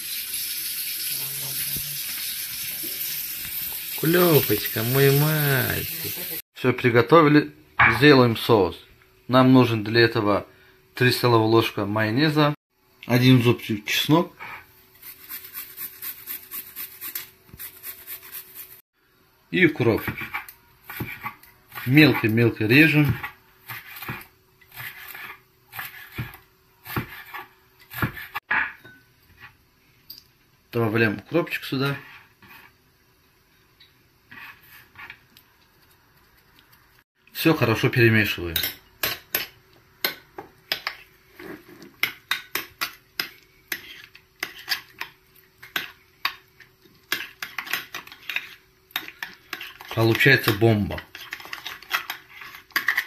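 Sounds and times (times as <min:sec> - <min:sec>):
knife chopping on wooden board: 0:25.8 - 0:28.4
spoon scraping ceramic bowl: 0:43.7 - 0:45.9, 0:47.1 - 0:50.2.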